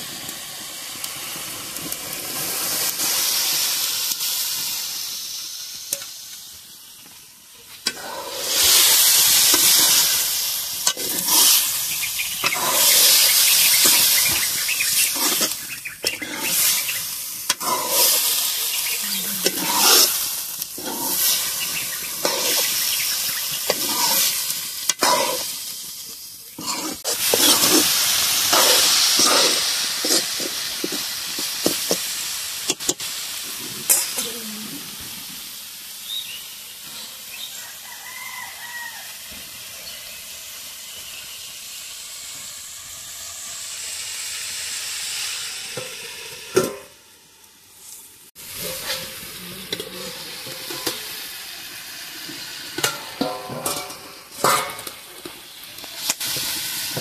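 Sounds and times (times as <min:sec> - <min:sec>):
frying sizzle: 0:00.0 - 0:57.0
metal ladle stirring and scraping: 0:12.4 - 0:14.4, 0:15.0 - 0:16.8, 0:19.4 - 0:23.0, 0:23.6 - 0:25.6, 0:26.6 - 0:32.0, 0:48.5 - 0:51.2, 0:52.8 - 0:55.3.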